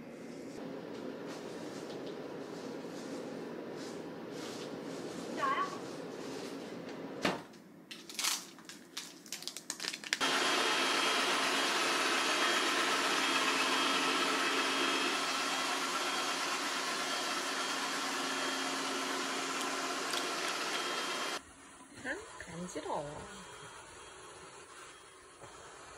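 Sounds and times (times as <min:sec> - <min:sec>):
robot vacuum motor hum: 0:10.2 - 0:21.4.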